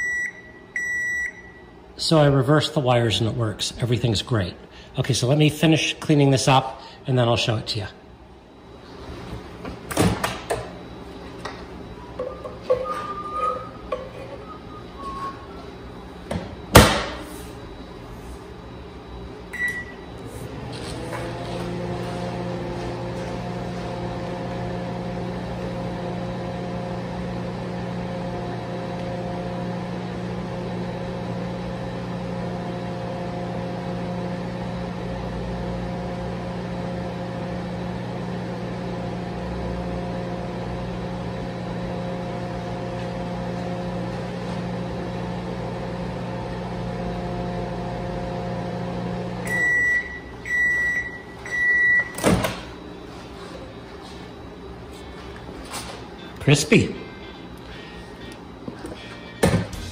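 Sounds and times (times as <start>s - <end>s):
microwave beeps: 0.0s - 1.8s, 19.5s - 20.4s, 49.4s - 53.0s
microwave oven humming: 0.0s - 59.9s.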